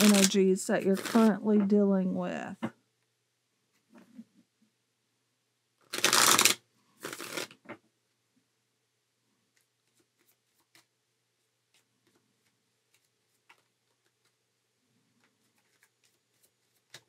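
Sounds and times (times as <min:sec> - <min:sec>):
cards being riffle-shuffled: 0:00.0 - 0:01.4, 0:05.8 - 0:07.6, 0:09.5 - 0:11.0, 0:11.6 - 0:14.4, 0:15.2 - 0:17.0.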